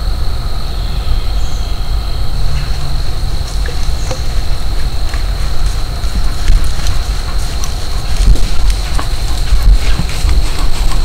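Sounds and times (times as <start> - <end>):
steady low rumble: 0.0 - 11.0
faint crackles: 2.5 - 11.0.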